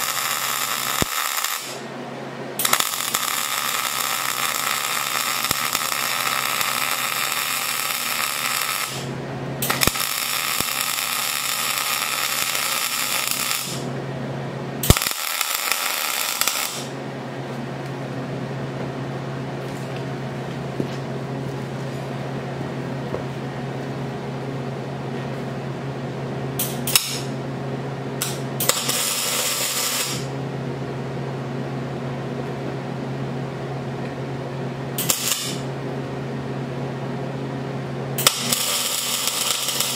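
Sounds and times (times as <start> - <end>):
welding arc crackling: 0.0 - 1.9, 2.6 - 13.9, 14.8 - 17.0, 26.6 - 27.3, 28.2 - 30.3, 35.0 - 35.6, 38.2 - 39.9
steady low hum: 0.0 - 39.9.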